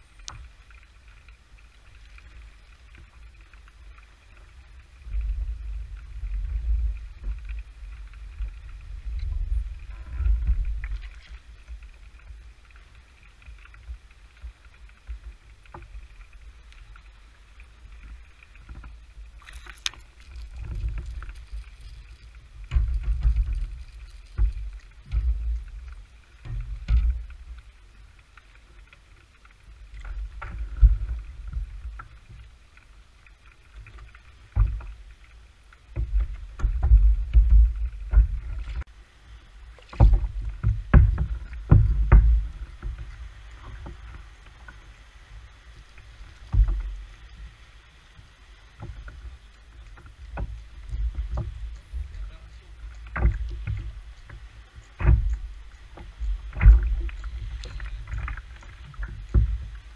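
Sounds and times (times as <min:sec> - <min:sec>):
knocks and clicks of fishing gear: 0:18.7 - 0:27.6, 0:33.8 - 0:35.0, 0:36.0 - 0:38.8, 0:39.8 - 0:44.1, 0:46.4 - 0:47.0, 0:53.0 - 0:59.8
water slapping against kayak hull: 0:33.8 - 0:39.0, 0:39.7 - 0:59.9.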